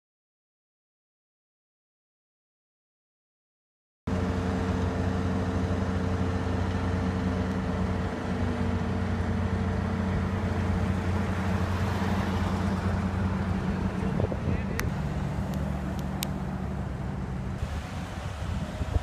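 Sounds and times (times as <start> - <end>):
cars moving through traffic: 4.1 - 19.0
idling vehicle engine hum: 4.1 - 19.0.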